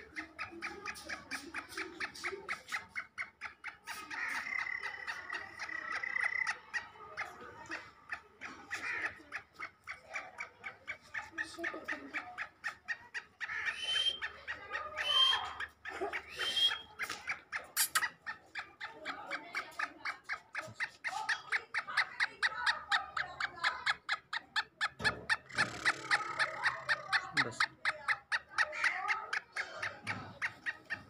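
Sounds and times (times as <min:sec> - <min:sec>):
harsh bird calls: 0:00.0 - 0:07.9, 0:10.4 - 0:19.2, 0:20.7 - 0:31.0
bird chirping rapidly: 0:12.4 - 0:19.2, 0:20.1 - 0:31.0.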